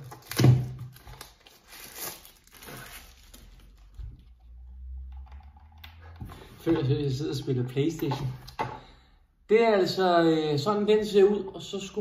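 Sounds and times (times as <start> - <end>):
plastic sleeve rustling: 0.0 - 4.3.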